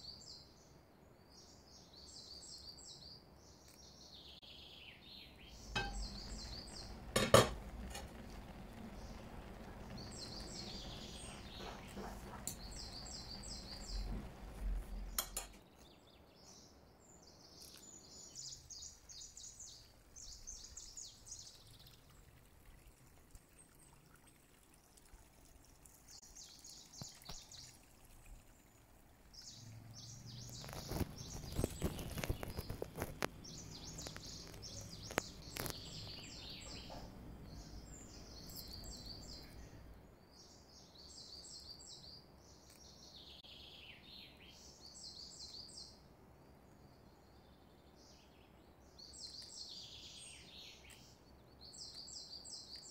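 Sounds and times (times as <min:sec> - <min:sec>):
small birds chirping: 0:00.0 - 0:52.9
utensils clinking and scraping: 0:15.1 - 0:15.6.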